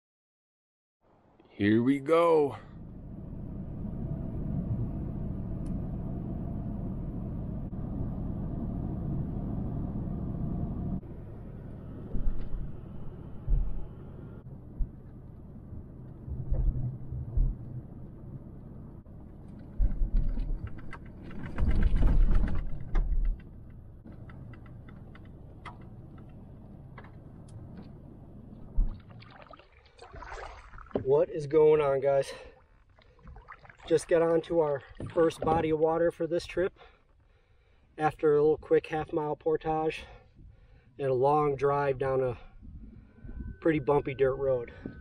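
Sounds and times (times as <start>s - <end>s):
vehicle rumbling over rough road: 1.8s - 29.3s
low thumps and knocks: 12.0s - 18.6s, 19.3s - 29.3s, 34.8s - 35.8s.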